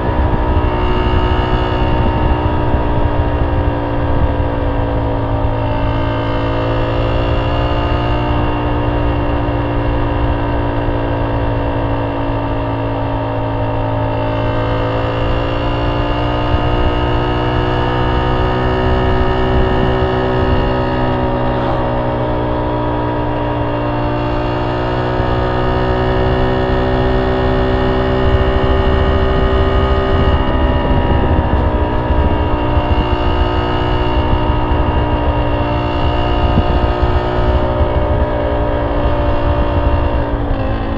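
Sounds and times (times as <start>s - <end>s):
motorcycle engine cruising: 0.0s - 40.9s
wind rush on microphone: 0.0s - 40.9s.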